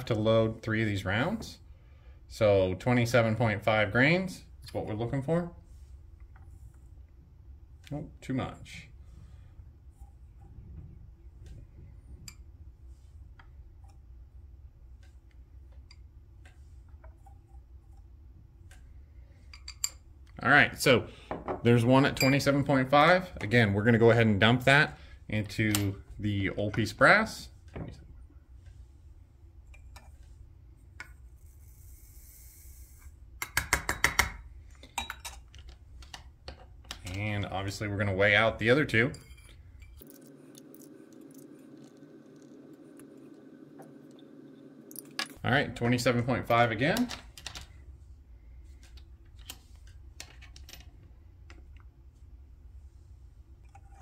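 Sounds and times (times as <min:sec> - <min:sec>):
low hum: 0:39.1 - 0:45.9.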